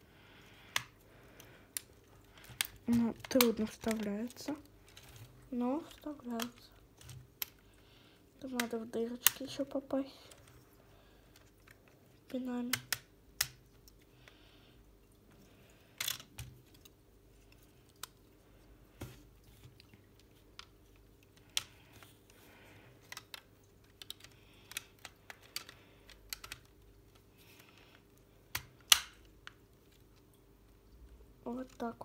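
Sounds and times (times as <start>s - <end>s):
plastic parts clicking: 0.7s - 7.7s, 8.4s - 10.6s, 16.0s - 16.9s, 23.0s - 29.6s.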